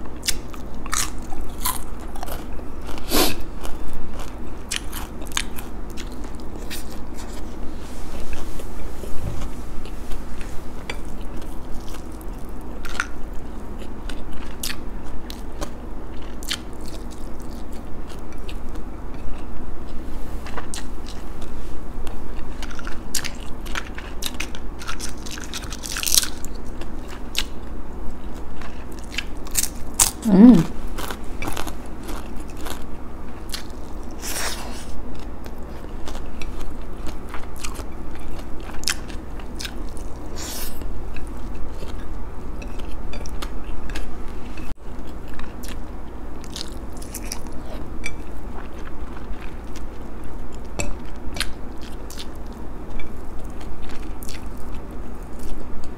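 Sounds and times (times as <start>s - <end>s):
chewing and crunching: 0.0s - 55.9s
person humming: 30.2s - 30.8s.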